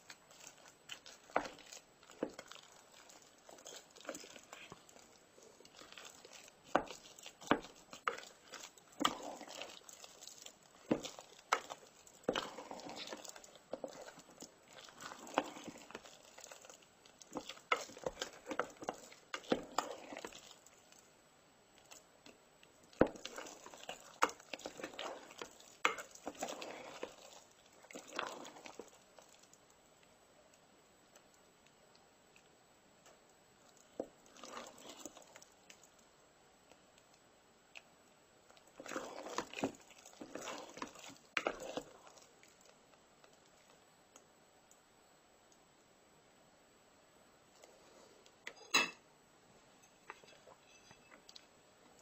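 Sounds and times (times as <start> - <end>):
wet scraping and squishing: 0.0 - 21.1, 21.8 - 29.6, 33.6 - 36.0, 38.5 - 43.8.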